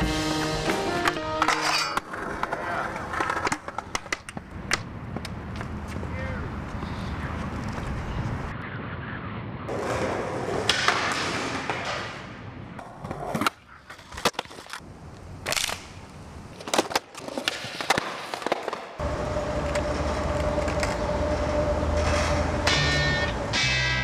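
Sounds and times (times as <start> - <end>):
skateboard wheels rolling: 0.1 - 8.6, 9.7 - 23.9
skateboard popping and landing: 1.0 - 5.7, 9.7 - 14.8, 16.6 - 19.0.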